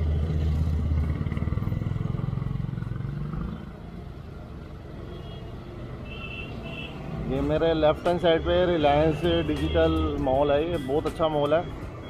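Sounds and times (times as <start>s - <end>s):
road hum: 0.0s - 12.0s
traffic engine drone: 0.0s - 12.0s.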